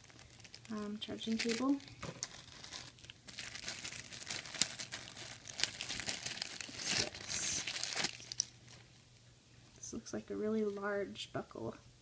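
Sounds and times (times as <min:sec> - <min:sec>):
plastic bag crinkling: 0:00.0 - 0:08.9.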